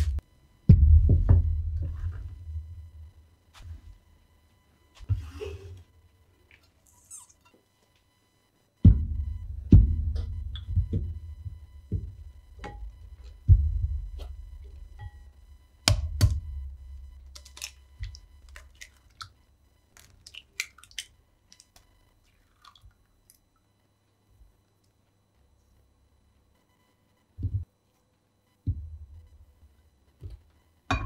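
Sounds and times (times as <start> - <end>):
eggs cracking against glass jug: 17.3 - 23.4
eggshell clicks and crackles: 17.3 - 23.4.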